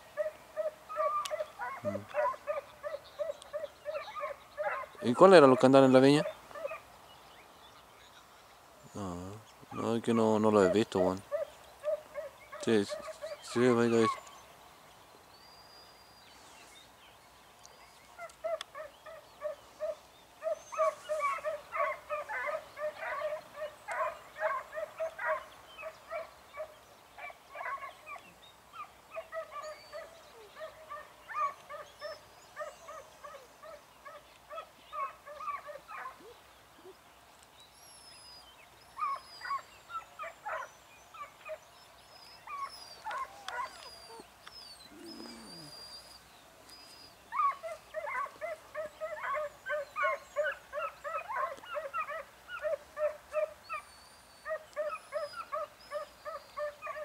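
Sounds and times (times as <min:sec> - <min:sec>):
distant dog yelping: 0:00.2 - 0:06.8, 0:10.6 - 0:14.3, 0:18.2 - 0:28.2, 0:29.1 - 0:36.9, 0:39.0 - 0:41.6, 0:42.2 - 0:57.0
faint bird chirps: 0:37.6 - 0:57.0.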